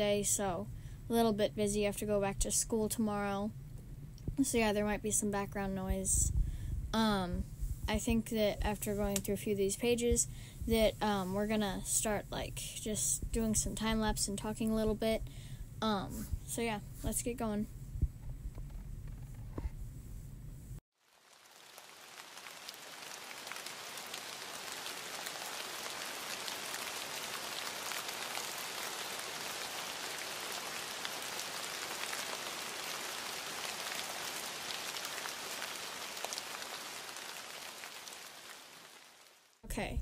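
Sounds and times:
rain patter: 21.0s - 40.0s.

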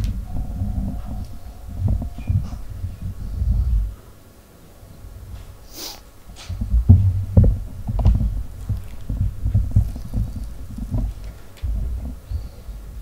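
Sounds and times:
short breathy hiss: 5.6s - 6.0s
handling thumps and rumble: 6.5s - 13.0s.

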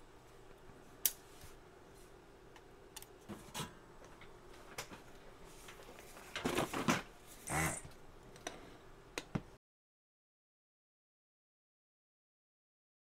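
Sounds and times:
faint steady hum: 0.0s - 9.6s.

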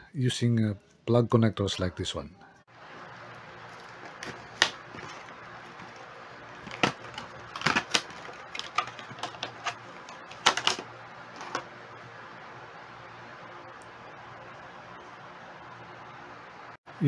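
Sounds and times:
plastic packaging crackling: 3.5s - 11.7s.

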